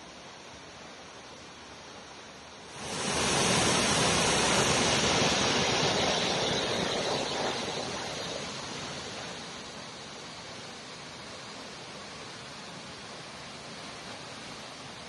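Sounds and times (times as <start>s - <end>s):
waterfall rushing: 2.6s - 15.0s.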